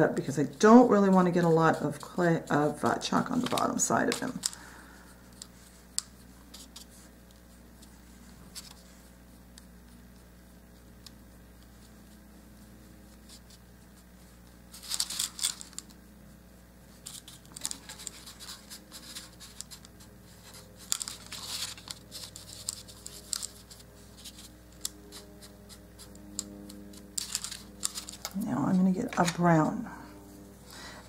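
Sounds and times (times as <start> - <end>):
paintbrush scratching on clay: 0.0 - 3.0, 11.6 - 14.8, 16.9 - 28.3
brush dabbing paper plate: 0.0 - 29.8.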